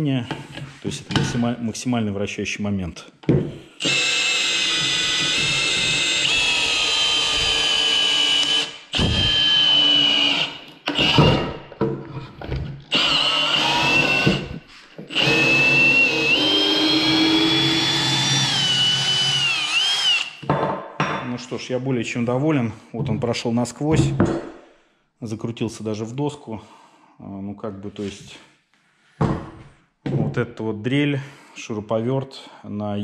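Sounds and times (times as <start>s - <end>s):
cordless drill motor whining: 3.8s - 11.5s, 12.9s - 20.4s.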